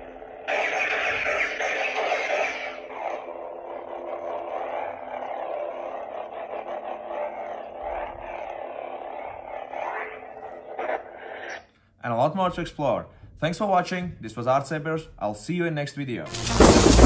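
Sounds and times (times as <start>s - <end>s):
lightsaber ignition: 0.0s - 11.6s, 16.3s - 17.0s
electronic hum wavering in pitch: 0.0s - 11.7s, 16.3s - 17.0s.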